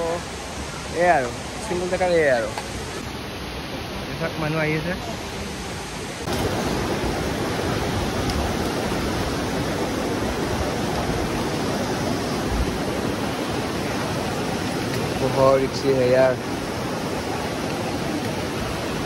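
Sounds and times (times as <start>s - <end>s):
fast-flowing stream rushing: 0.0s - 19.0s.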